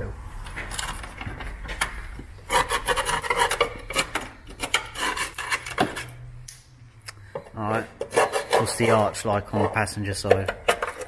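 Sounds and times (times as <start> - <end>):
rasping scrapes on metal: 2.5 - 4.0, 4.7 - 5.8, 8.0 - 9.3.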